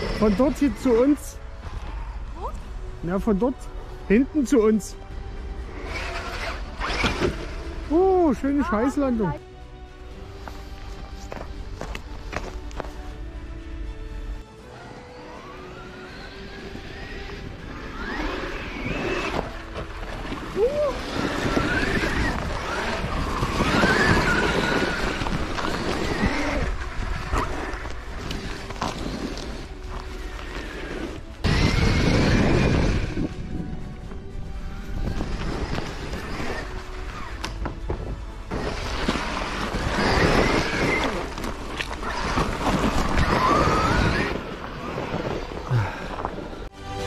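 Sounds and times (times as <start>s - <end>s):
electric motor whining: 0.0s - 2.9s, 5.2s - 8.0s, 14.6s - 47.0s
wind noise on microphone: 16.5s - 47.0s.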